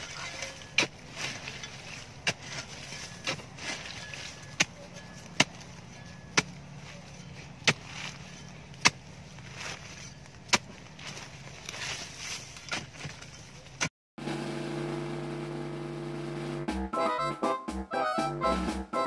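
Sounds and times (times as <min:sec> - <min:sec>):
hoe striking dry earth: 0:00.0 - 0:13.9
loose earth scraping: 0:00.0 - 0:13.9.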